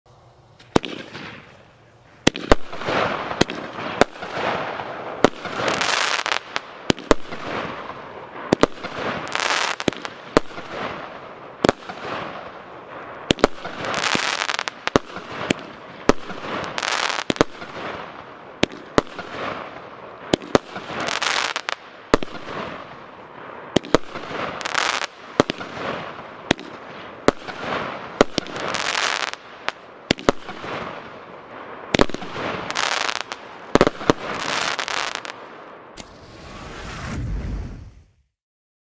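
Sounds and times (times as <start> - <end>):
firework shots banging: 0.6 - 1.6, 2.2 - 22.9, 23.7 - 31.1
hissing crackle of bursting stars: 36.0 - 38.3.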